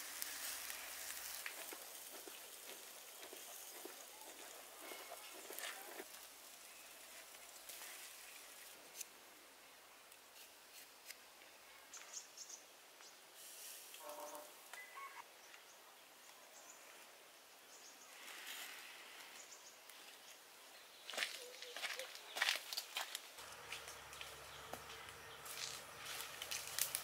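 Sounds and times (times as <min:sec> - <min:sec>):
bird call: 0:14.0 - 0:15.2.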